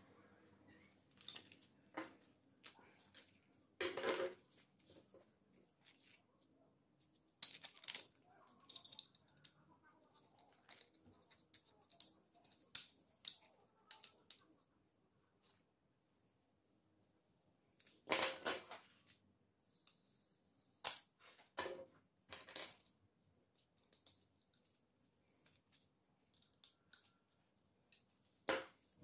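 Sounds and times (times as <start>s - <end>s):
plastic parts clicking on wood: 7.4s - 9.6s.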